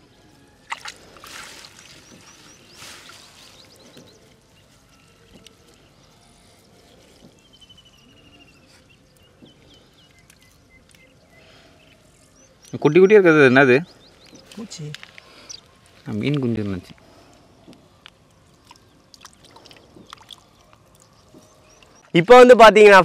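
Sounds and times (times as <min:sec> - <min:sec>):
water trickling and splashing: 0:00.7 - 0:06.0, 0:18.5 - 0:22.0.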